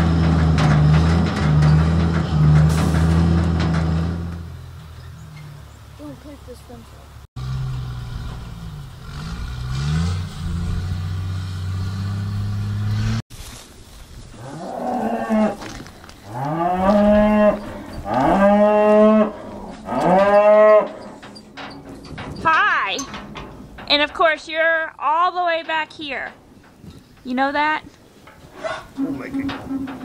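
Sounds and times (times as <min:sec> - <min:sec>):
cattle mooing: 0:16.3 - 0:21.2.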